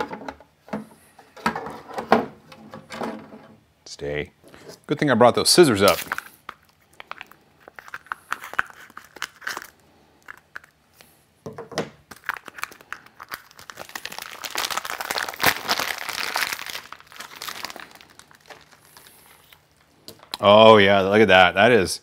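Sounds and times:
plastic wrapping crinkling: 0:05.8 - 0:10.8, 0:12.1 - 0:20.5.

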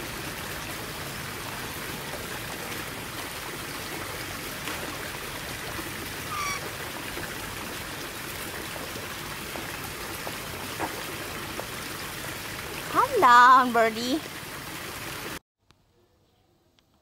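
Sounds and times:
rushing water-like noise: 0:00.0 - 0:15.4
parrot call: 0:06.2 - 0:06.7.

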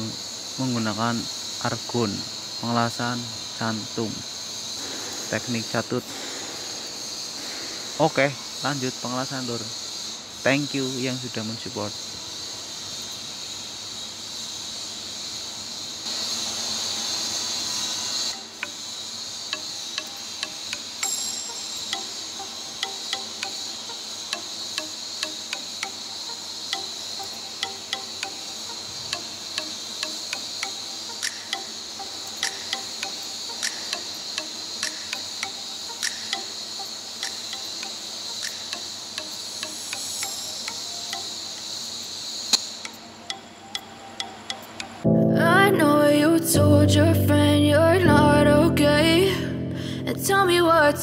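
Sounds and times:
sharp welding arc ticks: 0:00.0 - 0:11.2, 0:18.1 - 0:45.0
welding arc hiss: 0:00.0 - 0:44.0.

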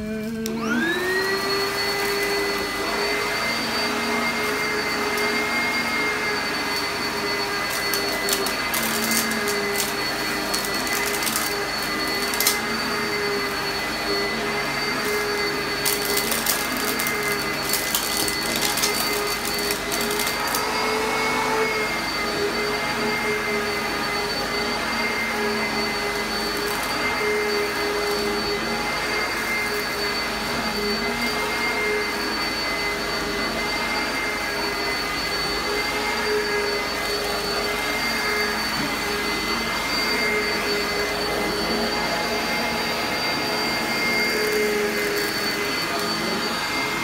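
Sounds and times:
upright vacuum cleaner running: 0:00.0 - 0:47.0.

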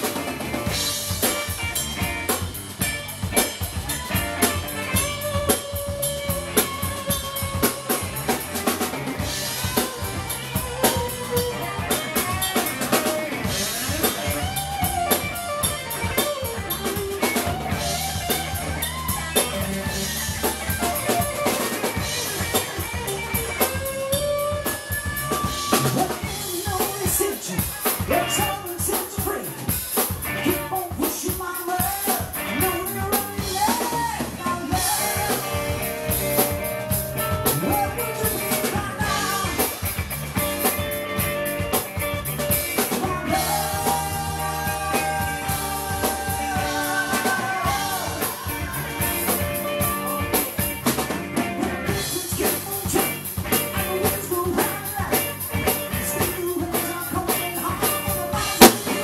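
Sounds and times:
drum kit: 0:00.0 - 0:59.0
electric guitar: 0:00.0 - 0:59.0
man singing: 0:03.3 - 0:18.3, 0:23.7 - 0:40.0, 0:42.6 - 0:59.0.

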